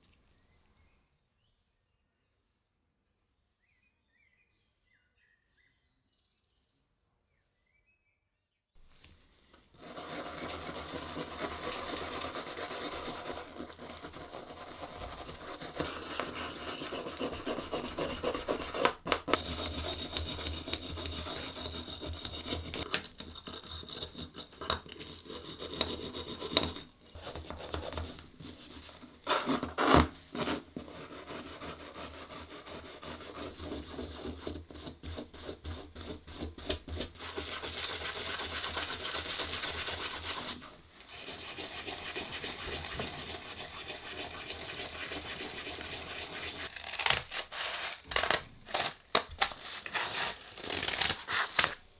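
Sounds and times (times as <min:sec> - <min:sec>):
wire brush scrubbing steel: 0:09.8 - 0:22.9, 0:35.3 - 0:46.7.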